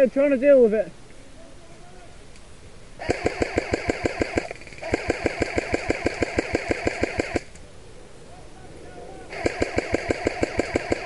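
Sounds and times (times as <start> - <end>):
airsoft rifle firing full auto: 3.0 - 7.5, 9.3 - 11.0.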